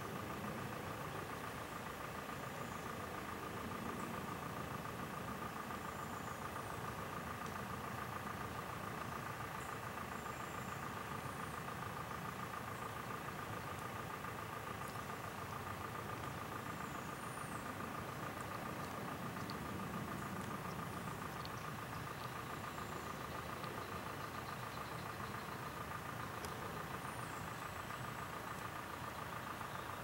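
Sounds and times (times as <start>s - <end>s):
mechanical drone with whine: 0.0s - 30.0s
faint high chirps: 5.7s - 30.0s.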